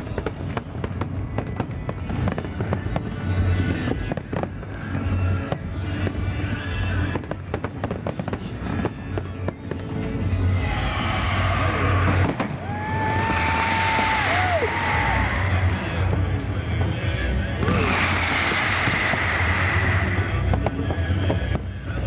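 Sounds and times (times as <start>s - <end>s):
fireworks bursting and crackling: 0.0s - 22.0s
music playing: 0.0s - 22.0s.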